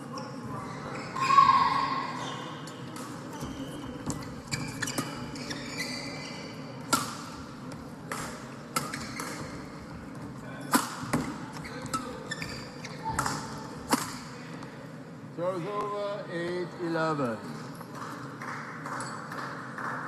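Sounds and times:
shoes squeaking on court floor: 0.1 - 1.5, 2.2 - 7.0, 8.7 - 14.3.

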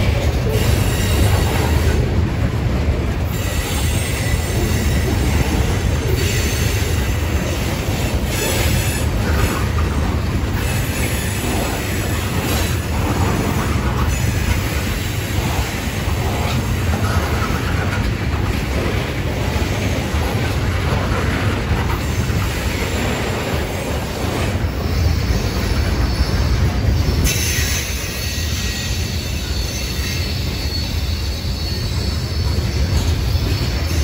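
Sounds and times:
train wheels rumbling on track: 0.0 - 34.0.

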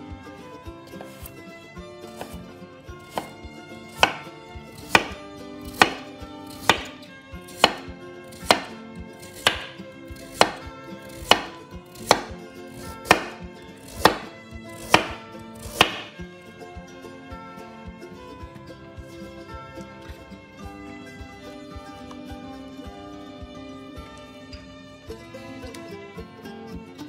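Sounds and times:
knife chopping on cutting board: 1.0 - 1.3, 2.1 - 2.4, 3.0 - 16.2.

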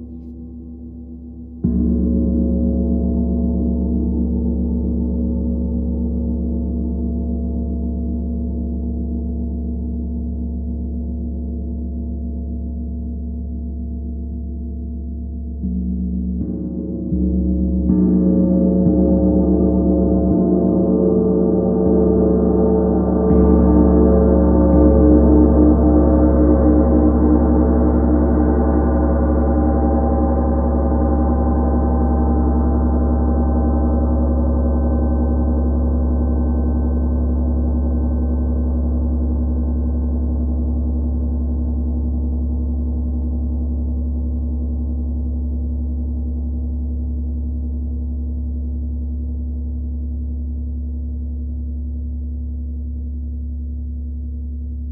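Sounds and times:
gong struck and ringing: 15.6 - 36.2.

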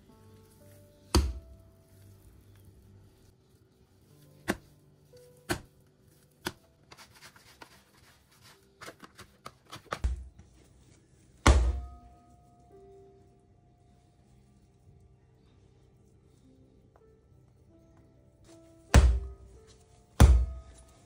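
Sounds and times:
dough slapped on countertop: 1.1 - 1.4, 5.5 - 5.7, 19.0 - 19.3.

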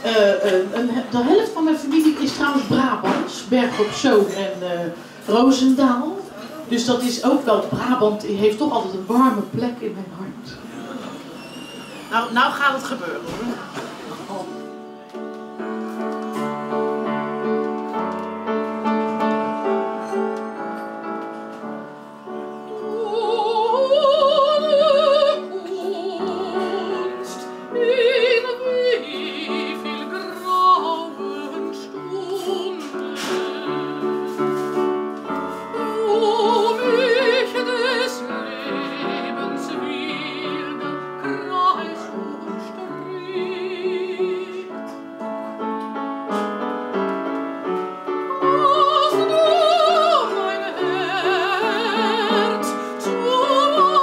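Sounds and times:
upright piano: 0.0 - 54.0
operatic soprano singing: 22.4 - 34.8, 35.5 - 45.0, 48.3 - 54.0.

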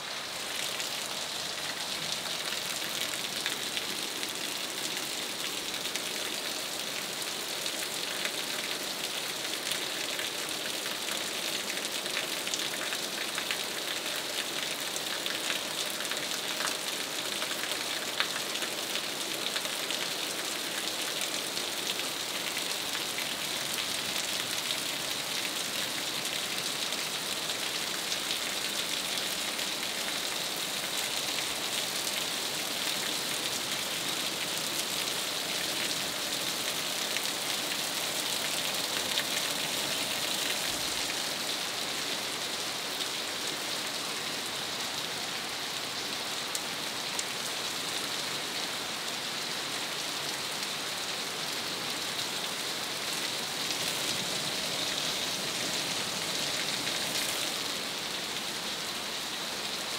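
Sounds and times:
rain falling on leaves: 0.0 - 59.9.

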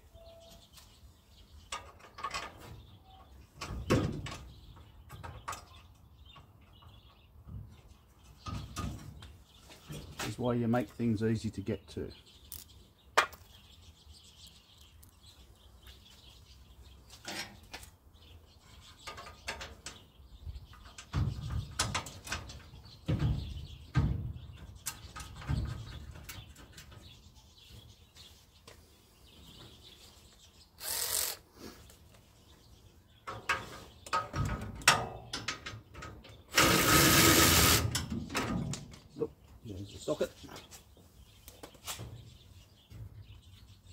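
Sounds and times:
power tool running: 30.8 - 31.4, 36.5 - 37.9.

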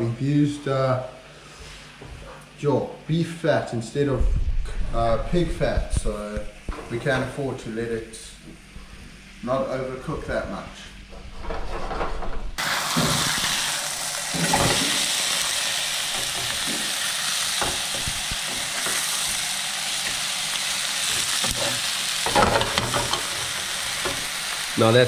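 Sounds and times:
sausage sizzling in a frying pan: 12.6 - 25.0.

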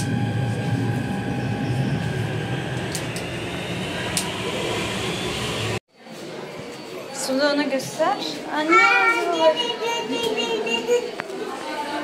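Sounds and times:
high whine: 0.0 - 5.8
lower whine: 0.0 - 5.8
train rumble: 0.0 - 5.8.

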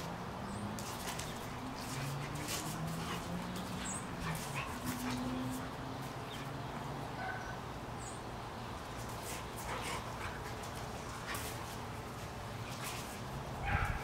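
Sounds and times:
scrapes on concrete: 0.0 - 6.5, 9.0 - 14.0
dogs scuffling: 0.7 - 6.6, 8.8 - 14.0.

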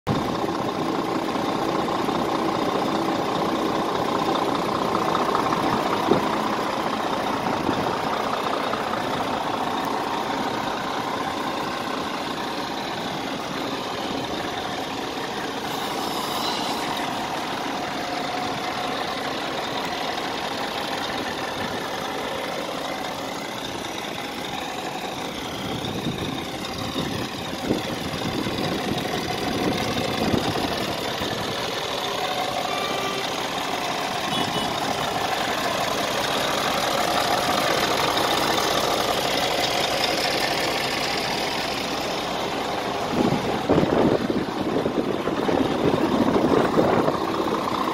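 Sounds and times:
diesel engine idling: 0.1 - 47.9.

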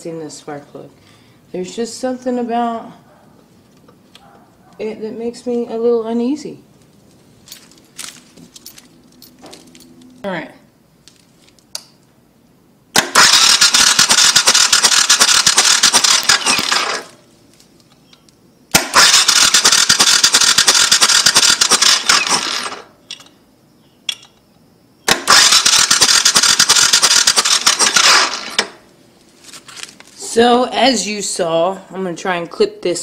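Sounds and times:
electric starter cranking engine: 13.0 - 17.2, 18.7 - 23.0, 25.1 - 28.8.

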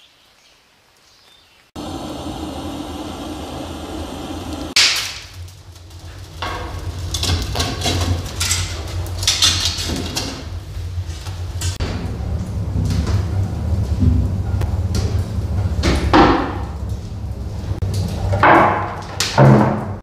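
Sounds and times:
blowtorch hissing: 1.8 - 9.2
irregular sharp cracks and knocks: 4.8 - 5.5.

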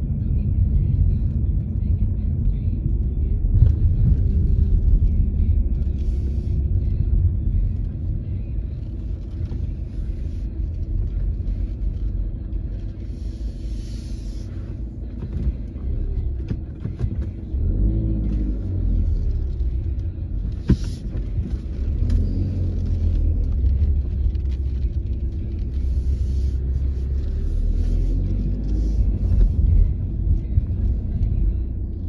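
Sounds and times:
car road and engine rumble: 0.0 - 32.0.

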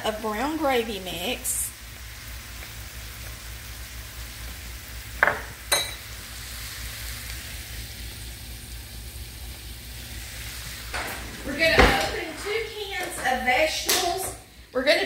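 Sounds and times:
meat sizzling in skillet: 0.1 - 11.0.

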